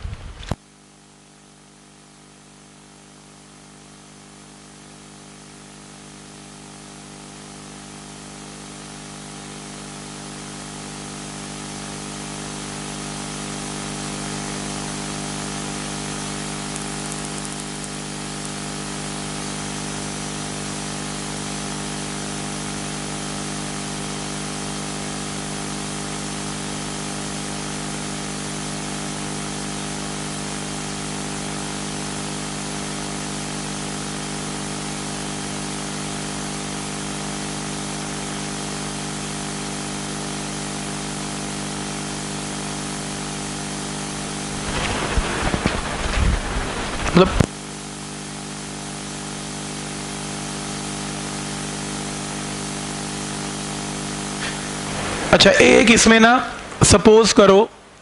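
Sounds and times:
steady hiss: 0.0s - 0.6s, 44.4s - 47.6s
low electrical hum: 0.0s - 1.6s, 44.2s - 47.9s, 52.4s - 58.0s.

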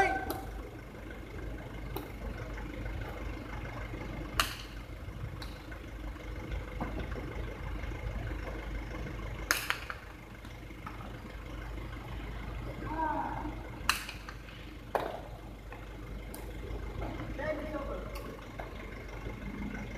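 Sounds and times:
low background hum: 0.0s - 19.9s
hard ball striking concrete: 13.9s - 15.3s.

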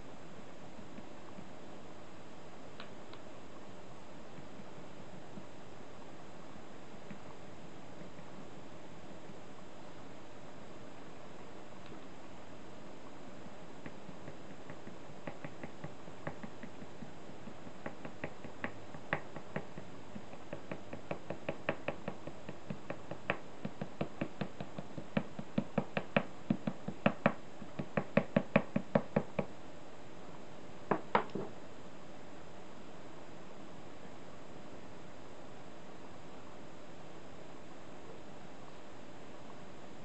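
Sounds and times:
brush tapping on board: 13.4s - 29.6s, 30.9s - 31.5s.

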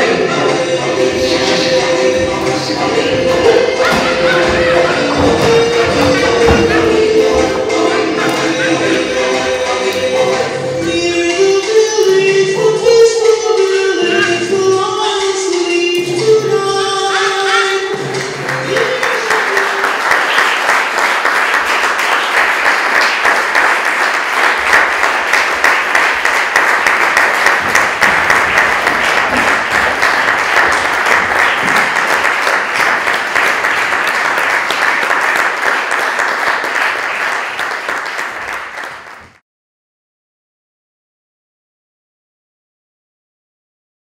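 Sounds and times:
audience applauding: 17.8s - 39.4s.

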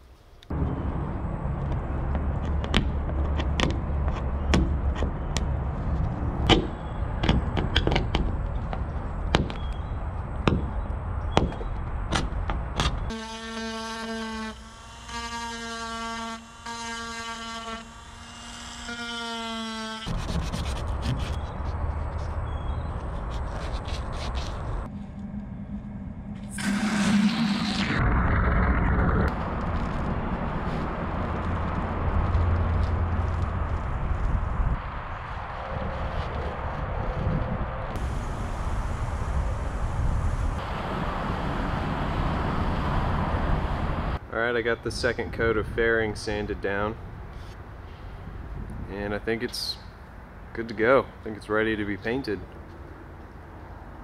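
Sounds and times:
rotary tool whine: 13.0s - 20.2s, 22.6s - 34.2s
rotary tool sanding: 13.1s - 21.6s.

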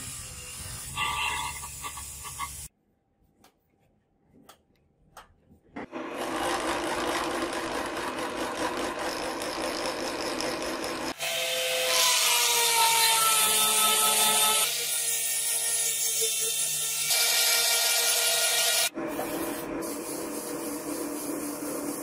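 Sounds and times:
rotary tool grinding metal: 6.2s - 11.2s.

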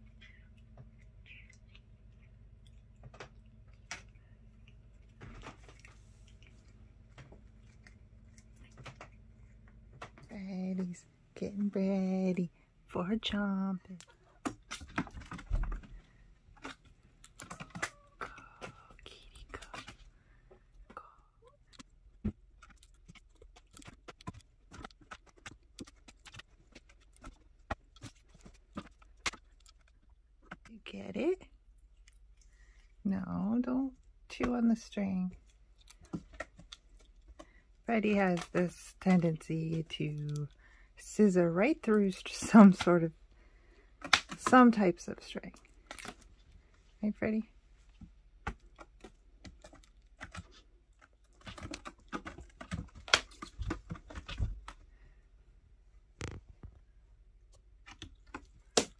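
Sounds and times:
cat chewing toy string: 0.0s - 10.2s, 15.9s - 30.7s
low steady hum: 0.0s - 58.9s.

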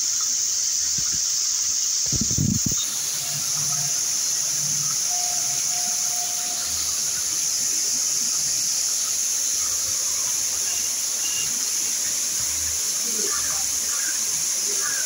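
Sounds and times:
fountain water spraying: 0.0s - 15.0s.

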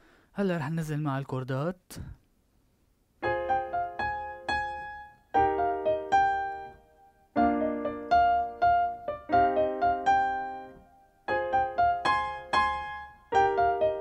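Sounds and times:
electronic keyboard chords and melody: 3.2s - 14.0s.

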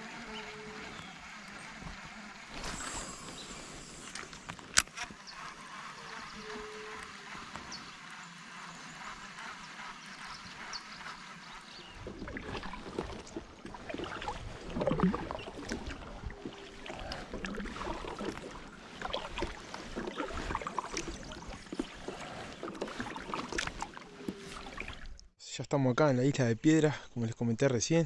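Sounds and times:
paddle splashing through water: 10.0s - 25.2s
water splashes and drips: 12.0s - 25.3s.

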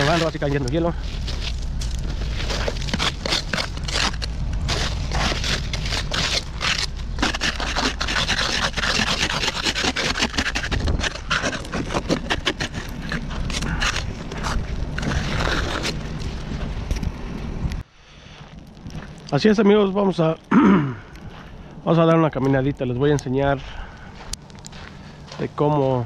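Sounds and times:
ice scraper scraping car window: 2.4s - 16.0s.

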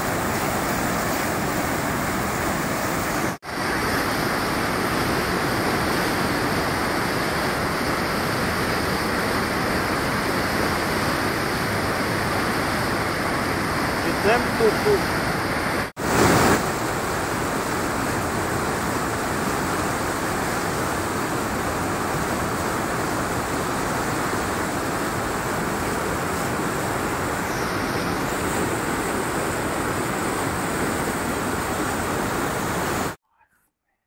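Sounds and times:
floodwater rushing: 0.0s - 33.2s.

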